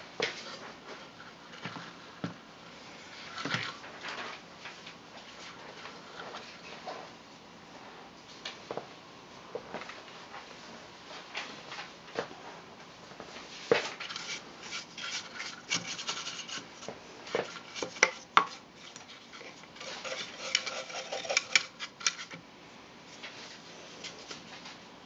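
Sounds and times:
clicks and knocks of handling: 0:13.7 - 0:22.4.

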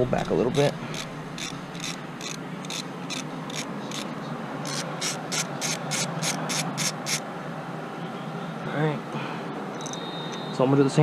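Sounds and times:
ratchet wrench clicking: 0:00.2 - 0:07.2, 0:09.8 - 0:10.0.

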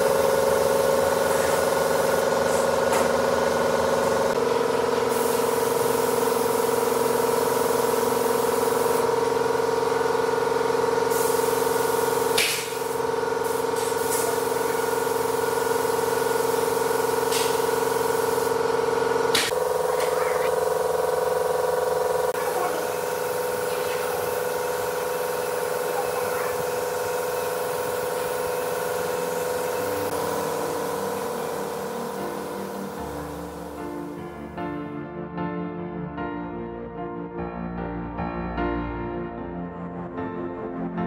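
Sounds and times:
hiss: 0:00.0 - 0:03.2, 0:05.1 - 0:09.1, 0:11.1 - 0:18.6, 0:22.4 - 0:34.1
workshop tool whining: 0:11.0 - 0:34.1.

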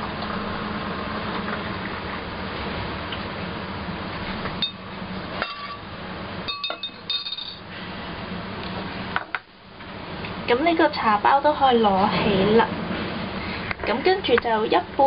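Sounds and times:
steady low hum: 0:00.0 - 0:15.0
crockery clinking: 0:06.5 - 0:07.6.

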